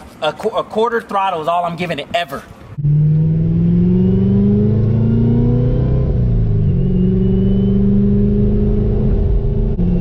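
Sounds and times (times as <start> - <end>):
car engine accelerating: 2.7 - 10.0.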